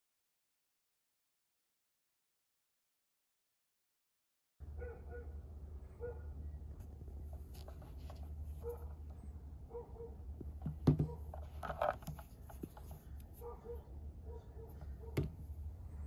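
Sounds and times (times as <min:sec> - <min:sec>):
cable rustling: 0:06.8 - 0:09.2, 0:10.4 - 0:13.6.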